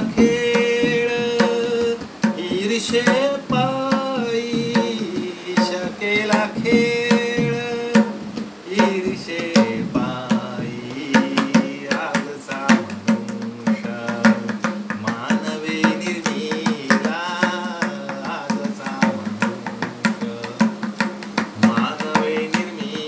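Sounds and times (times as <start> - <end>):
man singing devotional song: 0.0 - 23.0
tabla played by hand: 0.0 - 23.0.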